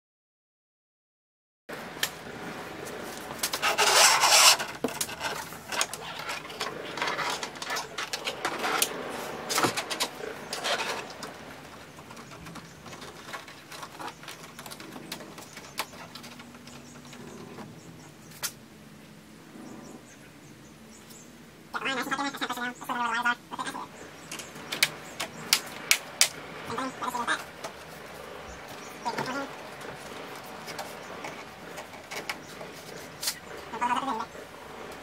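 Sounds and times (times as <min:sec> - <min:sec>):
rubbing and scraping under carpet: 0:02.4 - 0:16.5
scattered clicks: 0:03.2 - 0:17.6, 0:24.3 - 0:28.0.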